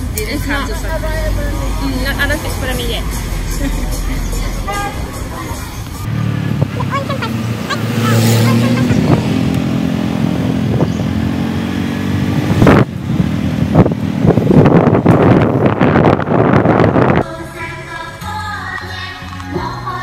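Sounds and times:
wind buffeting microphone: 0:06.0 - 0:17.2.

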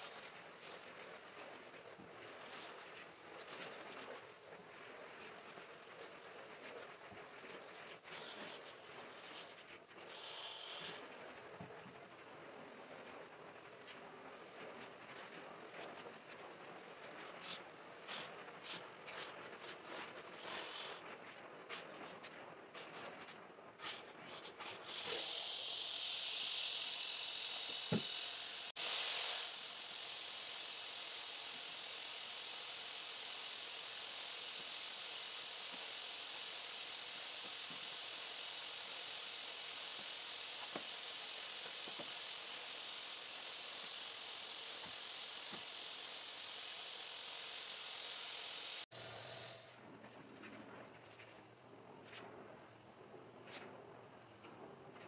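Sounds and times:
carpet extraction wand hissing: 0:00.0 - 0:07.1, 0:08.2 - 0:11.6, 0:17.0 - 0:21.0, 0:23.8 - 0:49.8.

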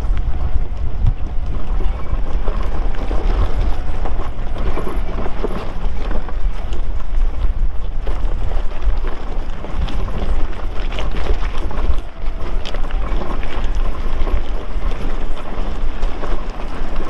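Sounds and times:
steady low rumble: 0:00.0 - 0:17.0
tyres crunching over rocks: 0:00.0 - 0:17.0.

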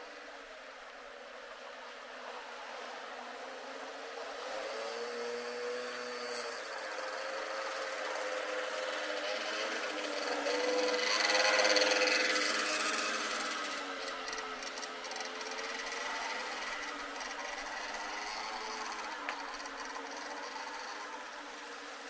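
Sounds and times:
surf hiss: 0:00.0 - 0:22.0
scooter engine buzzing: 0:04.5 - 0:22.0.

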